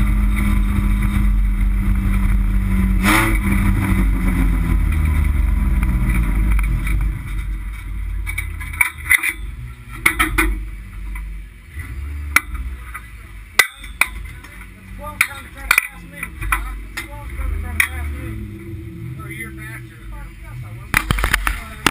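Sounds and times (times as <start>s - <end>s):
car engine rumbling: 0.0s - 21.9s
metallic clicks and clanks: 6.0s - 11.3s, 12.3s - 17.2s.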